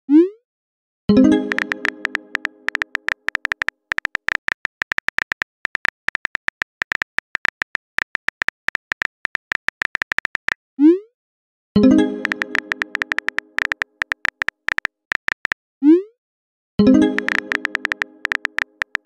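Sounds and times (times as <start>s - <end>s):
keyboard tap clicks: 1.5s - 10.6s, 12.2s - 15.6s, 17.2s - 19.0s.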